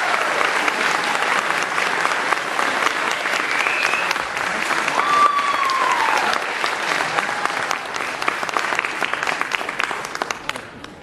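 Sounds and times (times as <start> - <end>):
audience applauding: 0.0 - 11.0
high whoop: 4.9 - 6.4.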